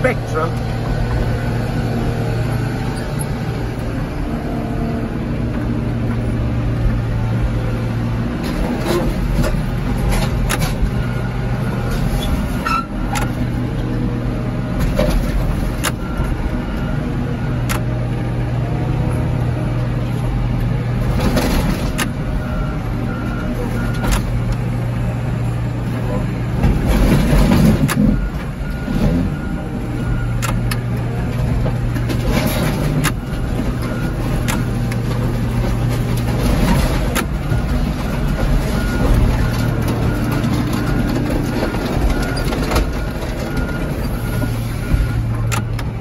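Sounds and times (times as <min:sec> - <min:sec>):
heavy equipment engine running: 0:00.0 - 0:46.0.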